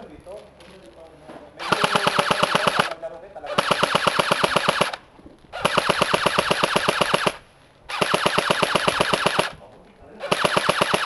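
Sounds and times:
airsoft gun firing bursts: 1.6s - 5.0s, 5.6s - 9.6s, 10.2s - 11.0s.

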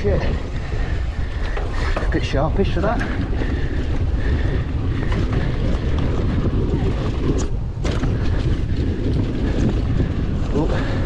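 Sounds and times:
wind buffeting microphone: 0.0s - 11.0s
bike knocks and rattles: 1.3s - 11.0s.

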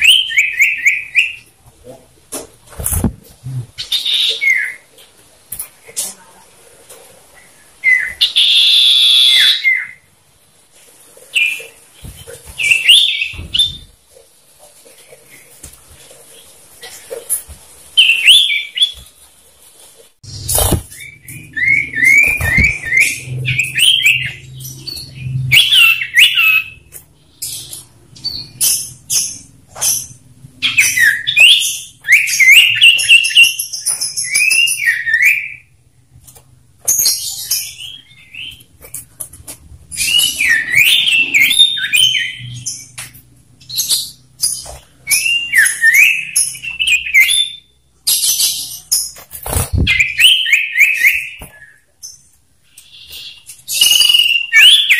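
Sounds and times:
bird whistled calls: 52.9s - 54.9s.

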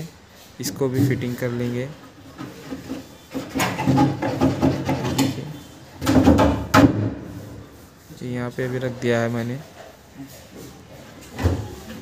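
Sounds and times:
wood scraping on wood: 0.3s - 12.0s
wooden knocks: 2.4s - 7.2s.

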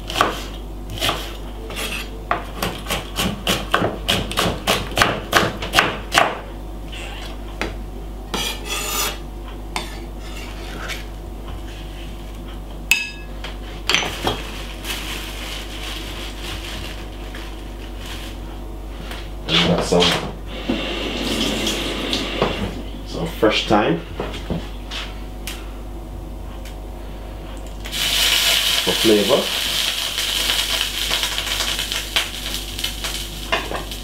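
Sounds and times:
knife chopping on wooden board: 0.1s - 6.4s.

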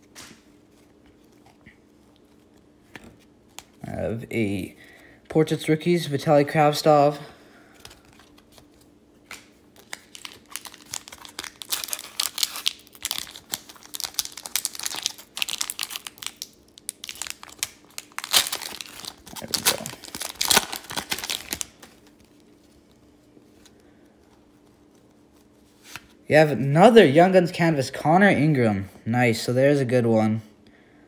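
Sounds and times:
card pack wrapper crinkling: 7.8s - 23.7s.

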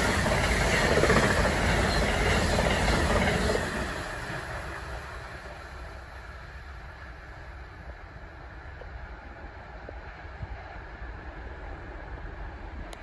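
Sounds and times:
wheels clattering on rails: 0.0s - 5.8s
passenger train rushing past: 0.0s - 13.0s.

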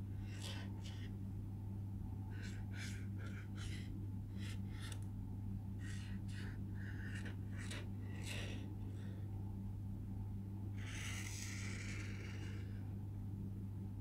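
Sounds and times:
low electrical hum: 0.0s - 14.0s
marker scratching on paper: 0.2s - 1.1s, 2.4s - 5.0s, 5.8s - 8.6s.

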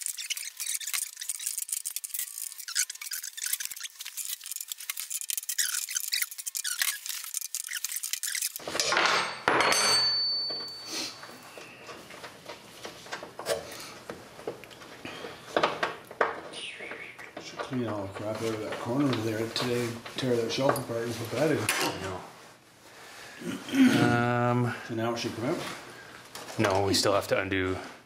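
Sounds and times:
ratchet wrench clicking: 0.0s - 8.7s
wrench clinking on metal: 8.7s - 10.9s.

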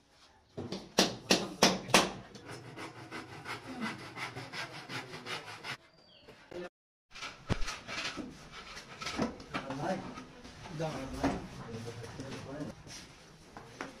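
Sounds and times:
hand saw cutting wood: 2.3s - 5.8s.

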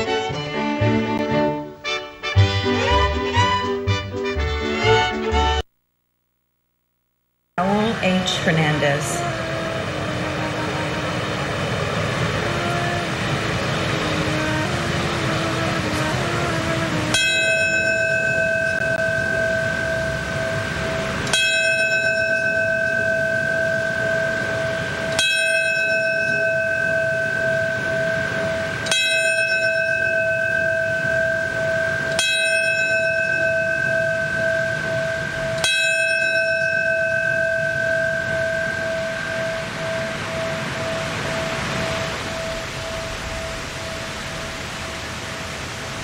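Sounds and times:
brass bell ringing: 14.3s - 44.2s.

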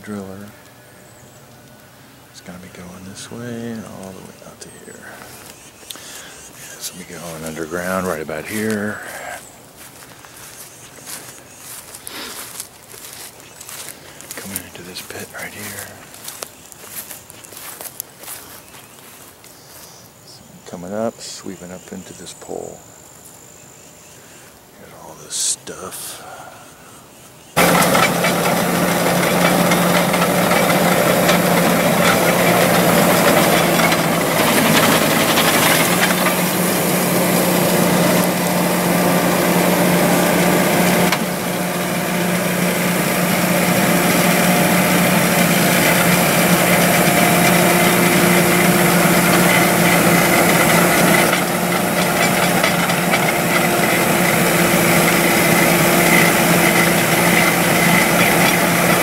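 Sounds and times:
loud rough mechanical noise: 2.4s - 18.4s, 27.6s - 59.0s
drill engine running: 5.0s - 17.0s, 27.6s - 59.0s.

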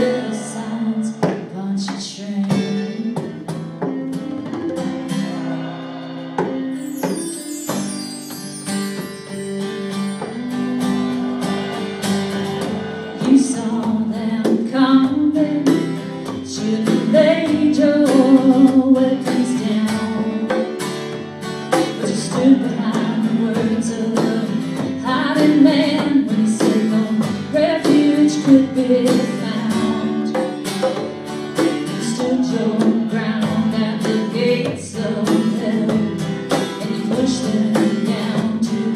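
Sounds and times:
woman singing: 0.0s - 3.6s, 12.9s - 20.8s, 21.7s - 30.8s, 31.6s - 38.9s
plucked string instrument: 0.0s - 38.9s
strummed acoustic guitar: 0.0s - 38.9s
hand percussion: 1.2s - 38.9s.

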